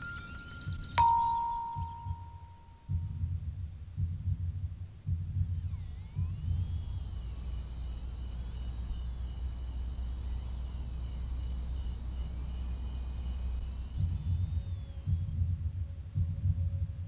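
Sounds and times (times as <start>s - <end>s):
rapidly pulsing insect-like chirps: 0.0s - 2.7s, 5.5s - 15.9s
thin steady high tones: 0.0s - 3.5s, 5.4s - 17.0s
steady low hum: 0.0s - 17.0s.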